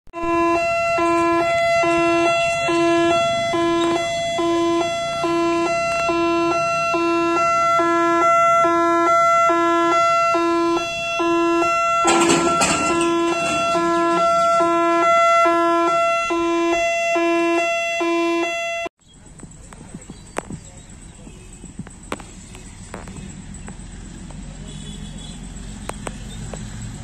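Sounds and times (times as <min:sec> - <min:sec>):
two-tone warning siren: 0:00.1 - 0:18.9.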